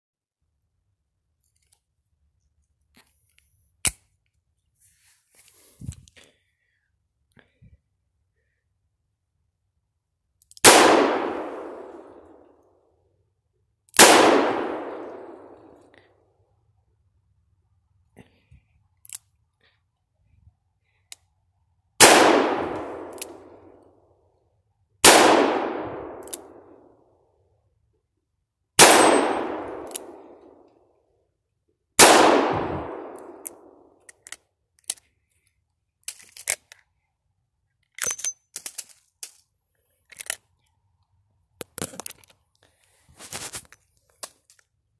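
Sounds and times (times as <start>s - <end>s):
metallic clicks of gun handling: 1.4s - 2.0s, 10.3s - 10.7s, 18.9s - 19.4s, 22.8s - 23.9s, 26.1s - 26.6s, 29.0s - 30.8s, 33.1s - 36.9s, 37.8s - 40.8s, 41.6s - 42.7s, 43.6s - 44.8s.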